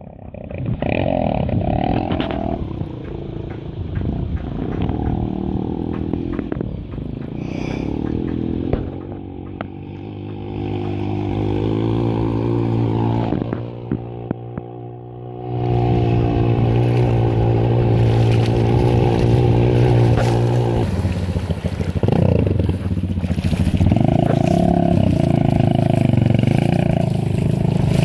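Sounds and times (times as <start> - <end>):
dirt bike engine revving: 0.0 - 28.0
water spraying off wheels: 15.7 - 28.0.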